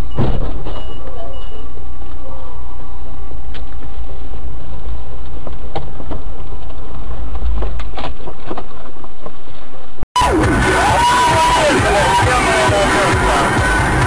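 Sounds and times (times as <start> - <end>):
heavy low vehicle rumble: 0.0 - 10.8.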